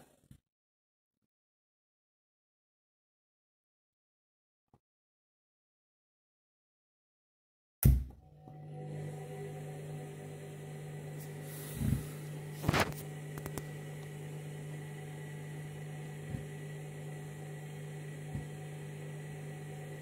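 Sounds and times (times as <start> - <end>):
washing machine motor hum: 7.8 - 20.0.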